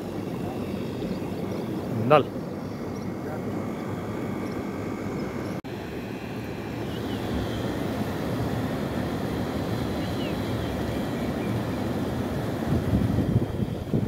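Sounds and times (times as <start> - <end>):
river water rushing through weir: 5.7 - 14.0.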